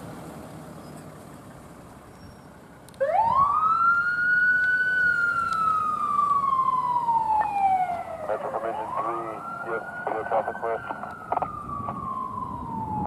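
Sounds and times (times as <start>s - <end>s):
emergency vehicle siren wailing: 3.0s - 13.0s.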